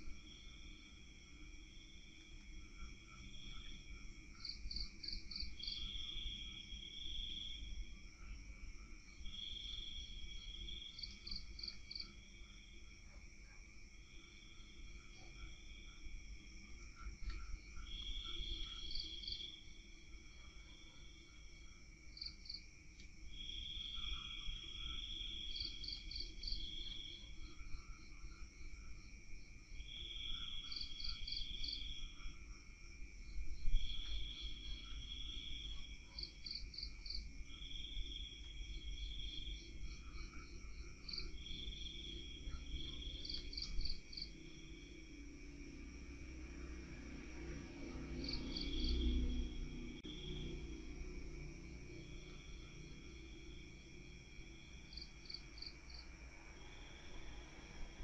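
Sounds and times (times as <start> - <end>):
crickets trilling: 0.0 - 58.0
pulsing insect trill: 13.9 - 58.0.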